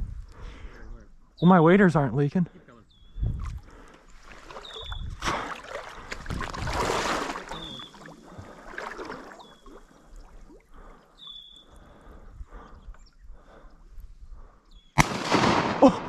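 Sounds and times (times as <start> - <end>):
water sloshing around wading legs: 3.3 - 11.8.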